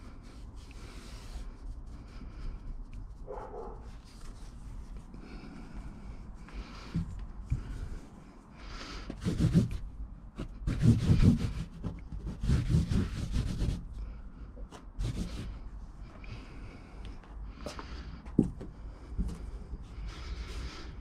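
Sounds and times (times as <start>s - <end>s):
hand rubbing carpet: 0.0s - 16.6s.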